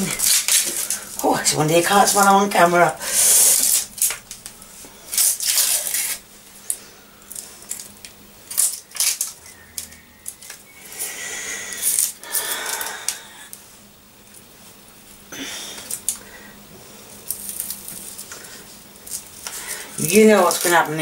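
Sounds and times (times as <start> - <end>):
onion skin crackling: 0.0 - 13.6, 15.4 - 21.0.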